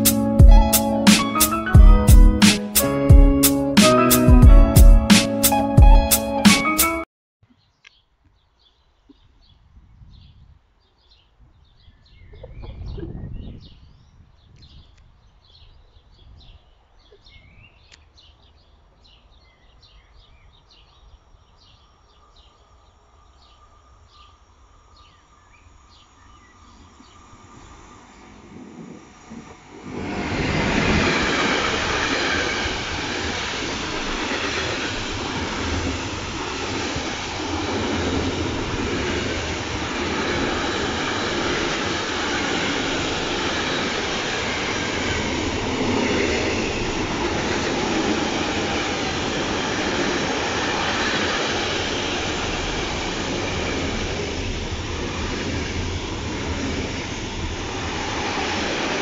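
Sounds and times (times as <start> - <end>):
freight train passing: 0.0 - 7.0, 23.0 - 59.0.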